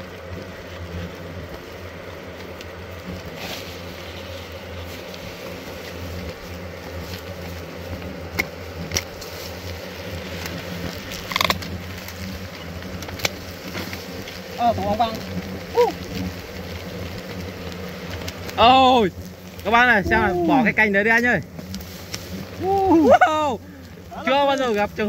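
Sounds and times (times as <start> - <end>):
hornets buzzing: 0.0 - 25.0
sharp clicks: 11.1 - 11.7.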